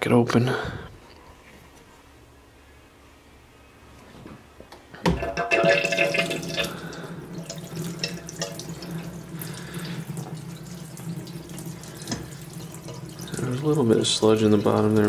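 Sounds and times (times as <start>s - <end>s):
water gushing from a pipe: 5.4s - 15.0s.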